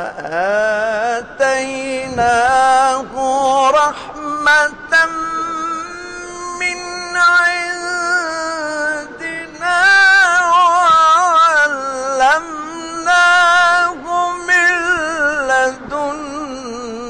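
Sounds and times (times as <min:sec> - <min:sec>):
man chanting a recitation: 0:00.0 - 0:17.0.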